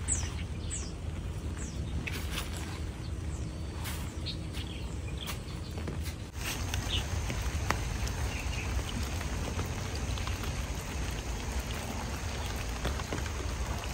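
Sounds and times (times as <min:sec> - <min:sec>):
close raindrops striking: 0:06.3 - 0:13.9
steady rain falling: 0:06.3 - 0:13.9.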